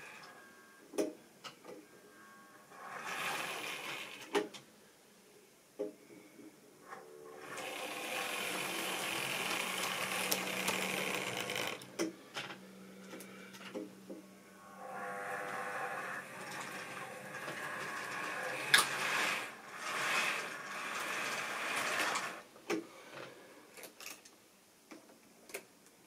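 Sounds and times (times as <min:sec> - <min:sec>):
small electric motor whirring: 0:07.4 - 0:11.9, 0:14.6 - 0:22.4.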